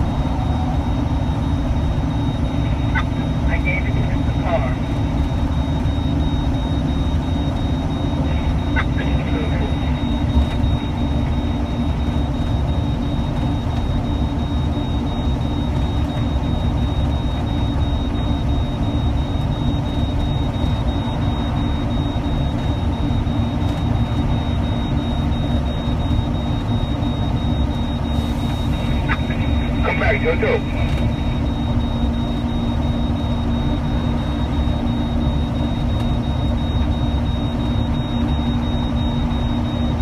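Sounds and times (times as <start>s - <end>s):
vehicle engine rumble in cabin: 0.0s - 40.0s
thin high whine: 25.6s - 40.0s.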